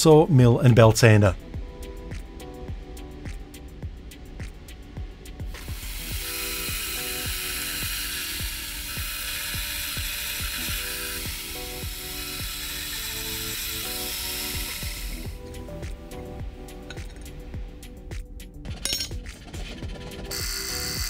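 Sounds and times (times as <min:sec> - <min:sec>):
drill whirring through metal: 0:05.5 - 0:15.4, 0:20.2 - 0:21.0.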